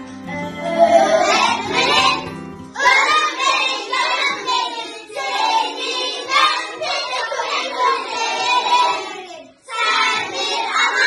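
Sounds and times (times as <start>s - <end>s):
low musical accompaniment: 0.0s - 3.0s
children singing in chorus: 0.2s - 11.0s.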